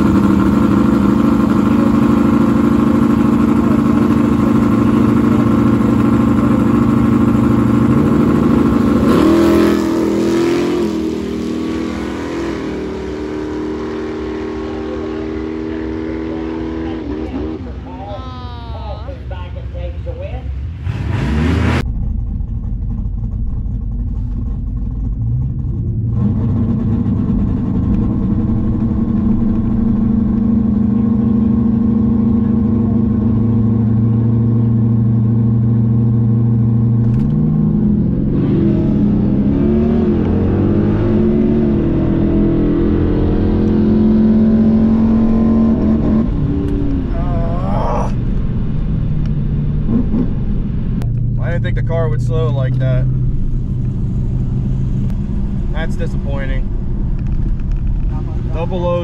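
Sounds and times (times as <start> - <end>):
car engine revving: 0.0 - 59.0.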